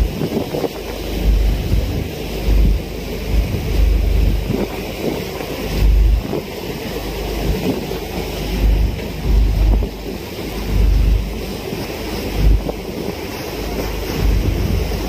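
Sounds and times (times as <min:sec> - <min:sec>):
rush of wind and water: 0:00.0 - 0:15.0
wind buffeting microphone: 0:00.0 - 0:15.0.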